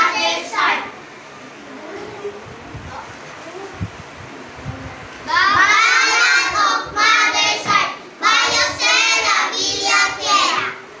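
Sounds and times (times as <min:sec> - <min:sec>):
children reciting in unison: 0:00.0 - 0:01.2, 0:05.3 - 0:11.0.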